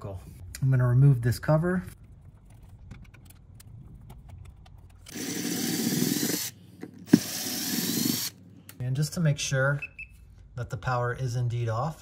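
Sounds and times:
cordless drill running: 5.1s - 8.4s.

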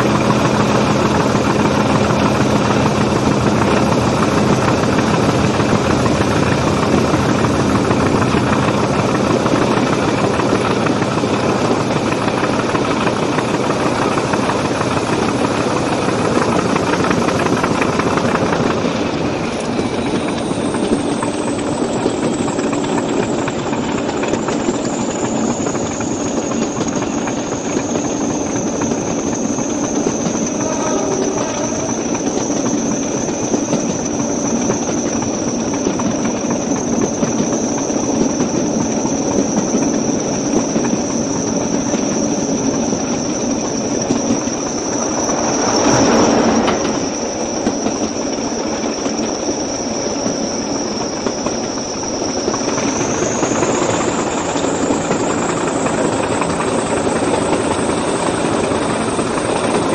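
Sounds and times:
diesel locomotive engine: 0.0s - 59.9s
wheels on rails: 0.0s - 59.9s
turbocharger whistle: 15.4s - 35.8s, 36.5s - 59.9s.

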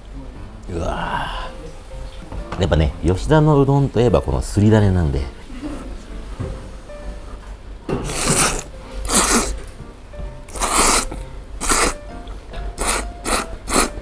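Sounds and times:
light background music: 0.0s - 14.0s
person slurping noodles: 8.0s - 9.6s, 10.5s - 12.0s, 12.8s - 14.0s.

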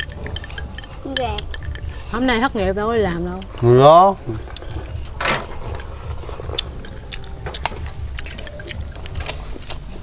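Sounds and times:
tableware clinking on bowls: 0.0s - 2.4s.

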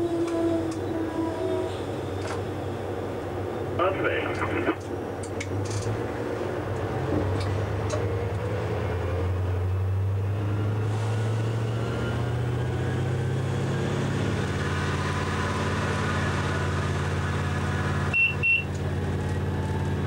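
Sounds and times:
diesel locomotive engine droning: 0.0s - 20.0s.

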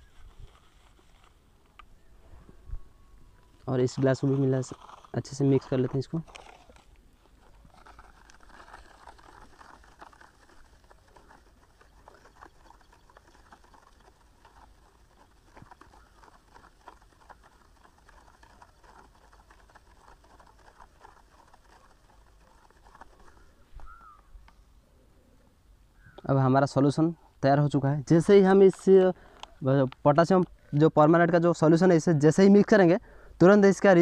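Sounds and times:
stick scraping in cup: 3.9s - 23.4s.

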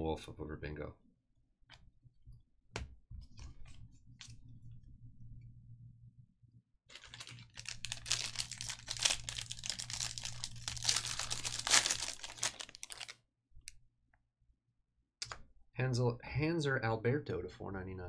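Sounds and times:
low steady hum: 3.1s - 13.1s.

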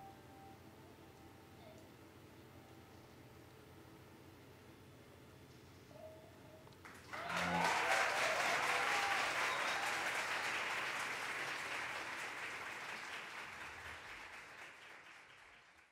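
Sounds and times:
audience applauding and cheering: 6.8s - 15.9s.

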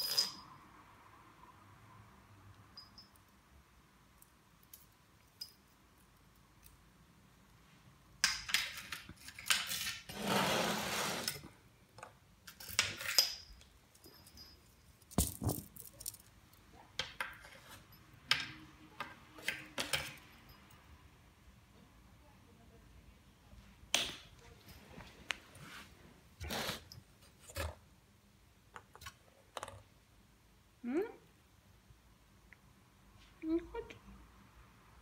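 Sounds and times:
small bell jingling: 2.7s - 3.3s, 13.2s - 16.2s.

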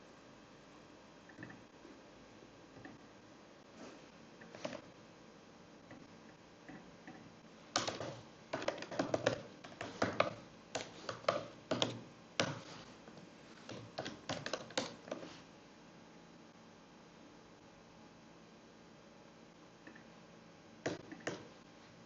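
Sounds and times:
computer keyboard typing: 7.8s - 12.6s, 13.6s - 15.2s.

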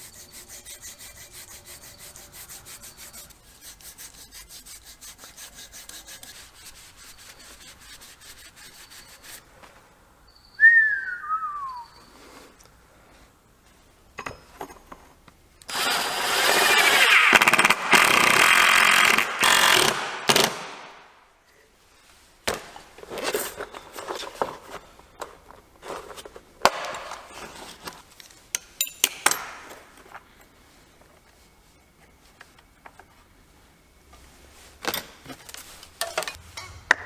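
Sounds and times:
cordless drill driving screws: 15.7s - 20.6s.

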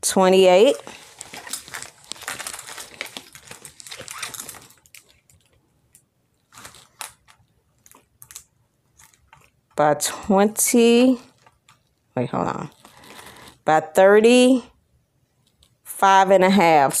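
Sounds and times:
plastic film crinkling: 0.6s - 9.8s, 11.2s - 13.6s
soft rustles: 0.8s - 5.6s.

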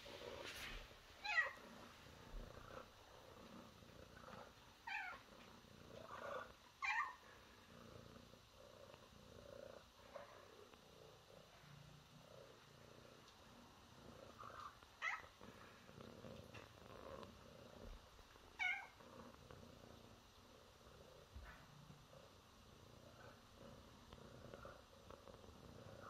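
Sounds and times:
cat trilling: 18.6s - 19.0s.

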